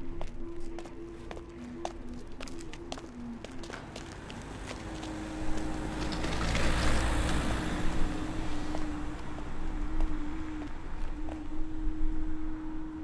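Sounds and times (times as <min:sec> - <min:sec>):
vehicle passing by: 0:03.2 - 0:13.0.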